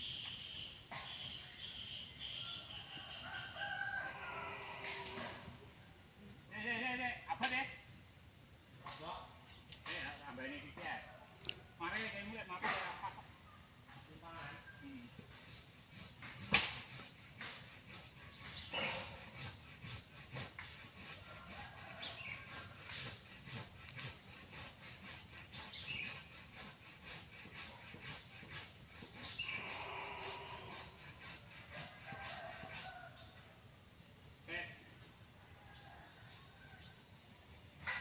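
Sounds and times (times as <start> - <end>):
insects: 0.0 - 38.0
bird calls: 8.7 - 33.5.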